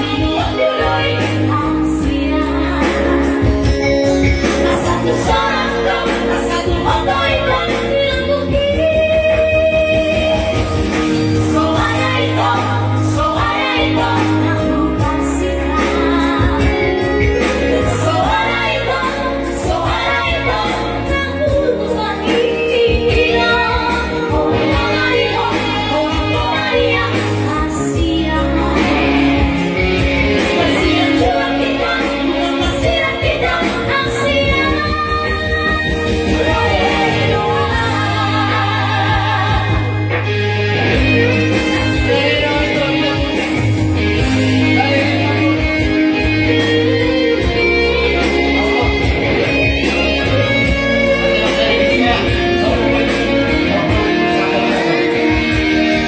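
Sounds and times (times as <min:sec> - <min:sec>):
drums: 0:00.0 - 0:56.0
electronic keyboard: 0:00.0 - 0:56.0
person singing: 0:40.9 - 0:56.0.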